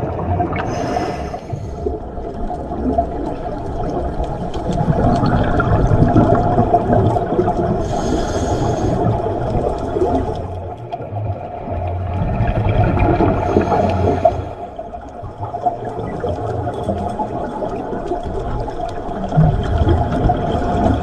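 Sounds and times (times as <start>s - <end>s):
exhaled bubbles gurgling underwater: 0.0s - 21.0s
regulator inhale hiss: 0.6s - 2.0s, 7.8s - 9.2s, 13.4s - 14.6s.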